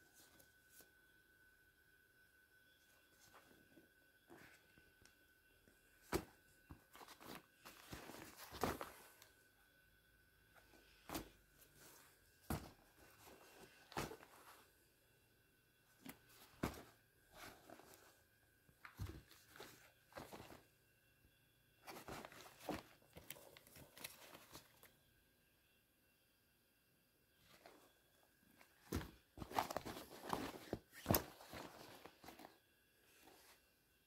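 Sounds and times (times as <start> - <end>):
shoes knocking and rustling: 6.1 - 9.1, 11.1 - 11.4, 12.4 - 14.6, 16.0 - 18.1, 18.8 - 20.6, 21.8 - 24.6, 28.6 - 32.5.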